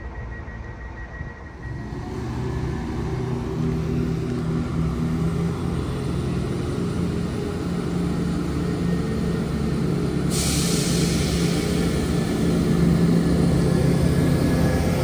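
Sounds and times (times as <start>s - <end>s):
train diesel engines droning: 0.0s - 15.0s.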